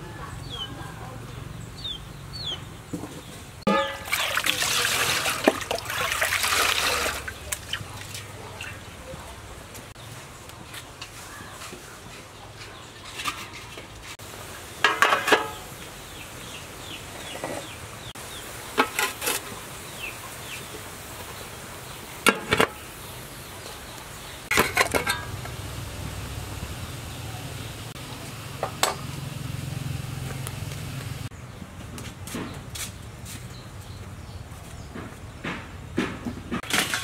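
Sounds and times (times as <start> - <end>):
chickens clucking: 0.0 - 4.0, 14.8 - 18.1
metal pot and lid clanking: 3.7 - 4.6, 14.8 - 15.7, 18.8 - 19.5, 22.3 - 22.8, 24.5 - 25.6, 28.6 - 29.1, 36.6 - 37.0.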